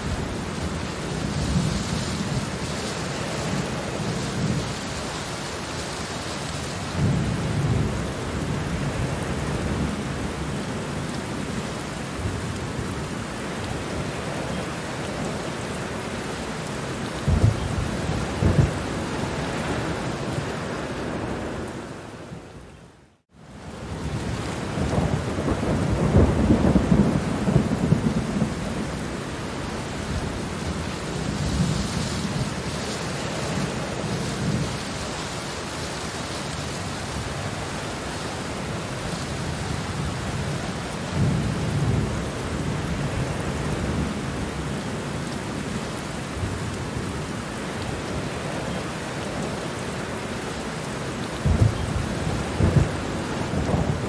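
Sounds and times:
steady rain falling: 0.0 - 54.0
thunder rumbling: 17.1 - 22.4, 23.8 - 35.0, 51.3 - 54.0.

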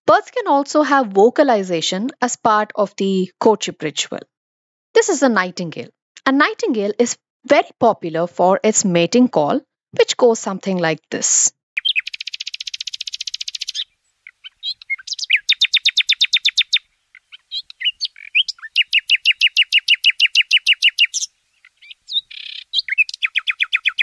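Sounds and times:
nightingale singing trills: 11.8 - 24.0.

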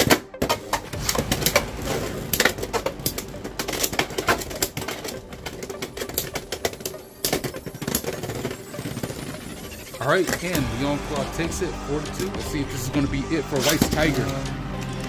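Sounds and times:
plastic clicking and clattering: 0.0 - 9.5.

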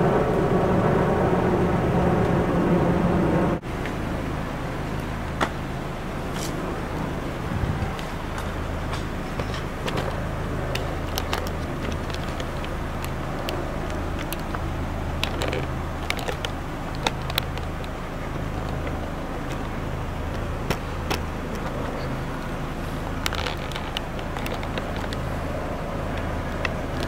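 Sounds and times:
car engine idling: 0.0 - 27.0
light clicks and taps: 8.0 - 25.3.

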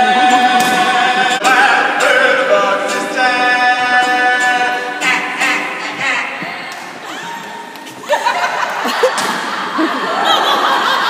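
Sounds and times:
person singing long notes: 0.0 - 7.3.

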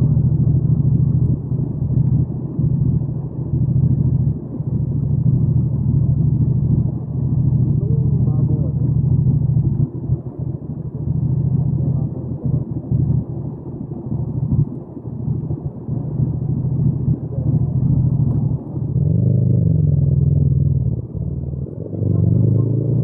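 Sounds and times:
motorcycle engine revving: 17.8 - 23.0.

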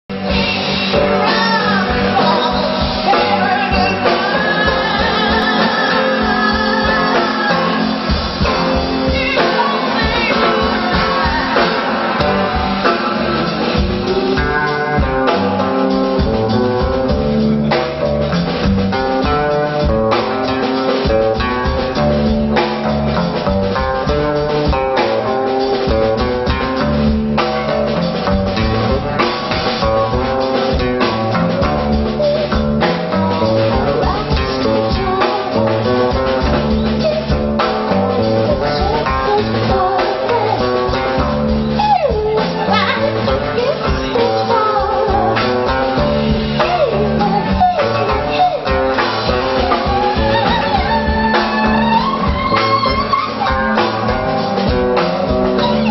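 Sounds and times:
drum kit steady beat: 0.1 - 55.9
electric guitar: 0.1 - 55.9
woman singing into microphone: 0.2 - 15.5, 33.4 - 54.4.

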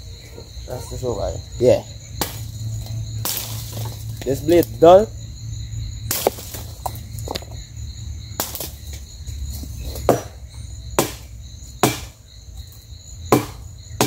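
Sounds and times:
insects trilling: 0.0 - 14.0
machete chopping tree trunk: 2.2 - 2.5, 3.2 - 4.3, 6.1 - 7.6, 8.4 - 9.0, 9.9 - 12.2, 13.3 - 14.0.

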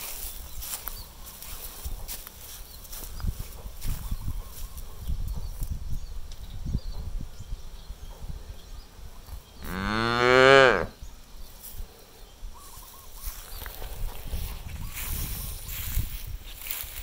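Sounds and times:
cow mooing: 9.6 - 11.0.

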